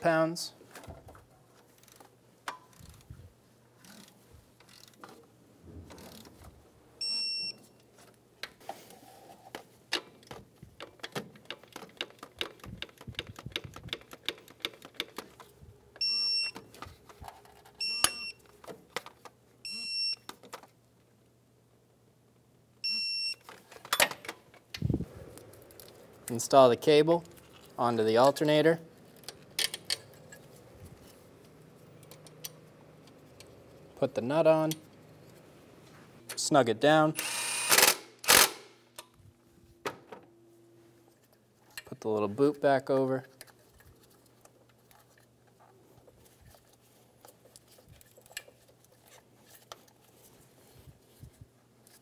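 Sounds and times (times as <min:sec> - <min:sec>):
torque wrench electronic beeps: 0:07.0 - 0:07.6.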